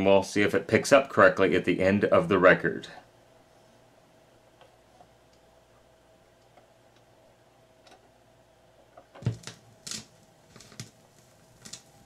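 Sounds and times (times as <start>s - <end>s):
faint steady hum: 0.0s - 12.0s
record clicks and pops: 8.9s - 12.0s
stylus thump on record: 9.2s - 9.6s.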